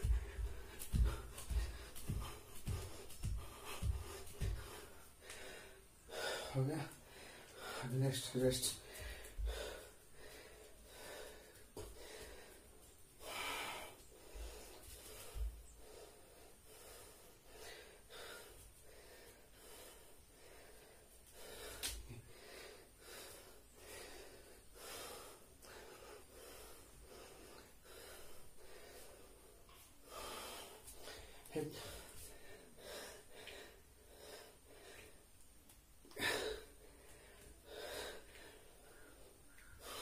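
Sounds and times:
bare feet thudding on floor: 0:00.0 - 0:04.9
man breathing hard: 0:00.0 - 0:08.0, 0:08.7 - 0:35.3, 0:36.0 - 0:40.0.

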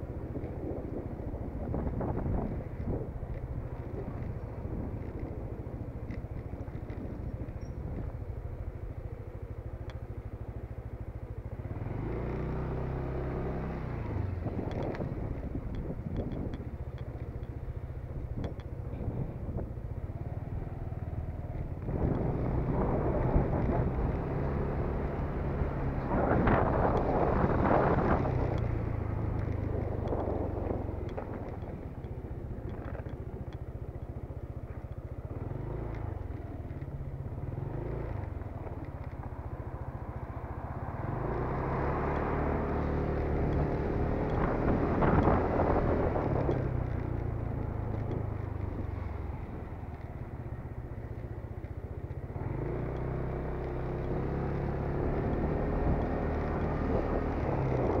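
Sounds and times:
road and wind noise: 0:00.0 - 0:58.0
scooter engine running: 0:00.0 - 0:58.0.

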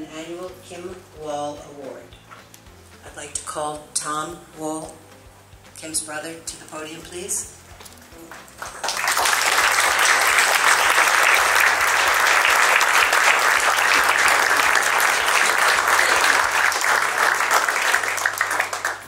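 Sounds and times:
audience applauding: 0:08.2 - 0:19.0.

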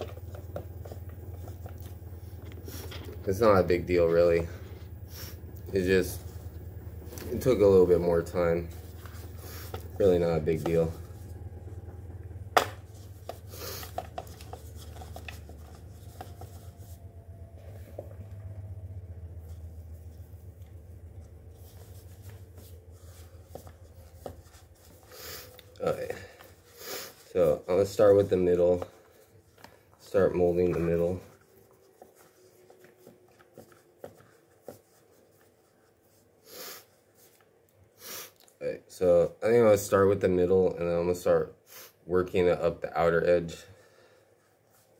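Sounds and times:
steady low hum: 0:00.0 - 0:38.0
puff of breath: 0:13.5 - 0:14.0.

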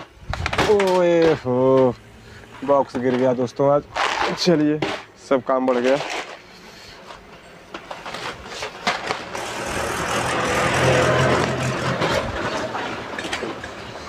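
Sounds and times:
rumble with low hum: 0:00.0 - 0:05.3.

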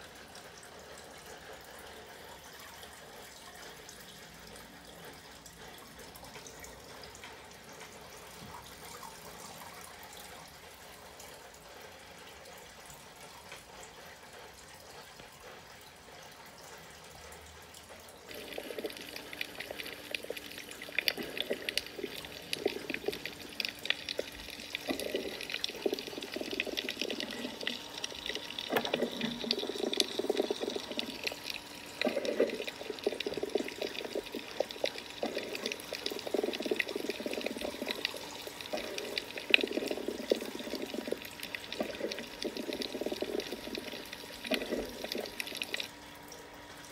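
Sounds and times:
sloshing water underwater: 0:18.3 - 0:46.0
faint steady hiss: 0:18.3 - 0:46.4.

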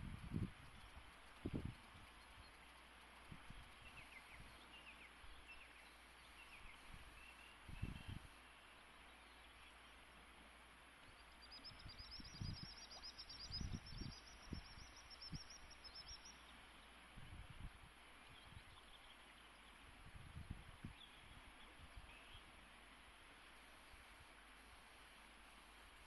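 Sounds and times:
songbird trill: 0:00.0 - 0:10.4, 0:11.0 - 0:17.0, 0:18.2 - 0:19.9, 0:20.8 - 0:22.8
river flowing: 0:00.2 - 0:11.8, 0:14.2 - 0:20.1, 0:21.1 - 0:26.0.

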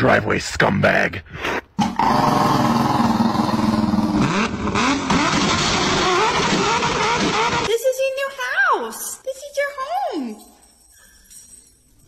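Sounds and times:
engine running and revving: 0:02.0 - 0:07.7.

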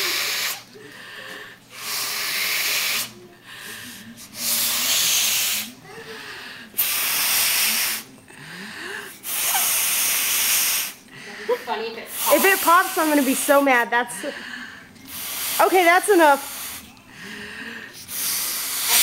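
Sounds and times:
air blown into a balloon: 0:00.0 - 0:00.7, 0:01.7 - 0:03.2, 0:03.8 - 0:05.8, 0:06.8 - 0:08.1, 0:09.2 - 0:11.0, 0:12.1 - 0:13.6, 0:15.1 - 0:16.9, 0:18.0 - 0:19.0.

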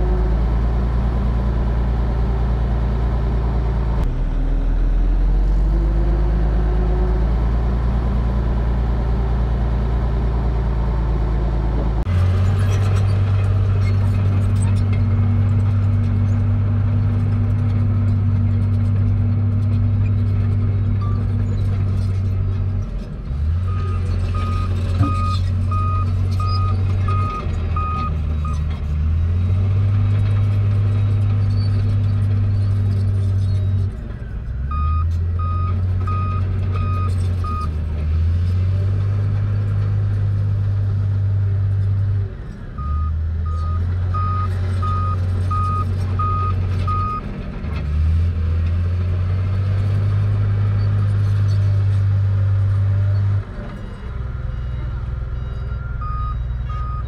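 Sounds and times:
bulldozer diesel engine running: 0:00.0 - 0:57.0
reverse alarm beeping: 0:54.6 - 0:57.0.

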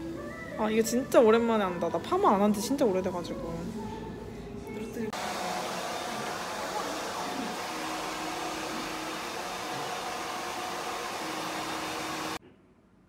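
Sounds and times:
hair dryer blowing: 0:05.1 - 0:12.4.

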